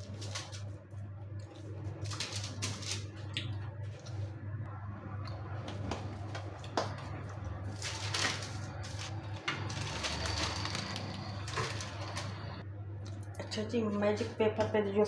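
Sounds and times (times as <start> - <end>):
steady low hum: 0.0 - 15.0
paper crinkling: 7.6 - 12.6.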